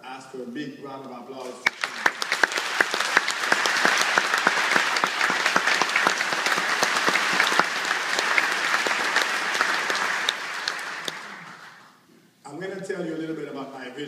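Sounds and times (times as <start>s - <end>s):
large audience applauding: 1.6s - 12.0s.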